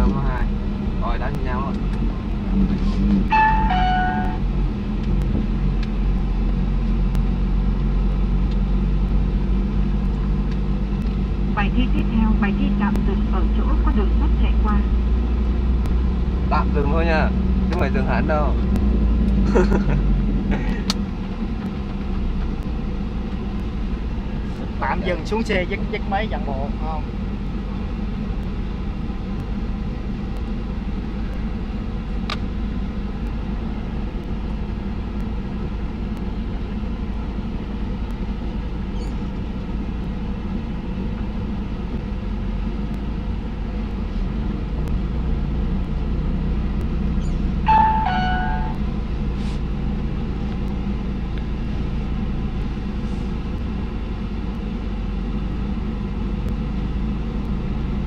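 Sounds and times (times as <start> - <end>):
car engine running: 0.0 - 58.0
pitched tone stepping down: 3.1 - 4.5, 47.2 - 48.9.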